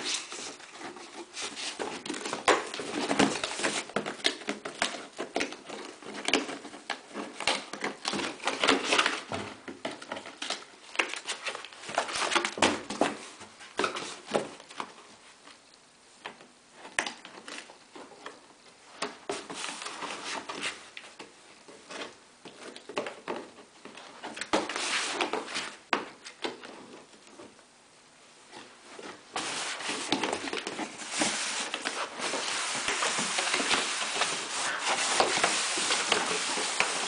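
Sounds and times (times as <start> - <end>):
cardboard box scraping and crinkling: 29.1 - 37.0.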